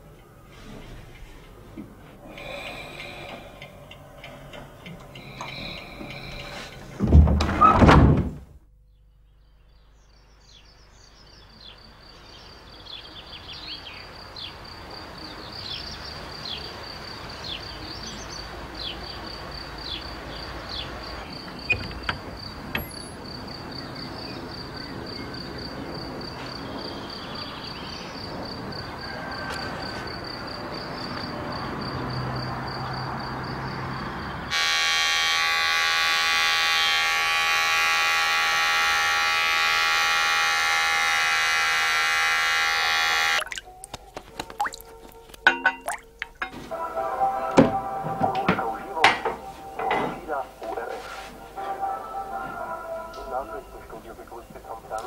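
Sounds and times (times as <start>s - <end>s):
high insect trill: 19.1s - 43.7s
electric shaver buzzing: 34.5s - 43.4s.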